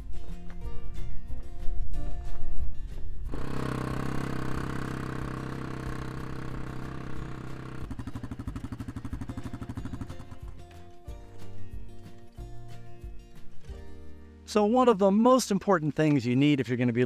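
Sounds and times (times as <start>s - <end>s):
quad bike engine running: 3.3s - 12.6s.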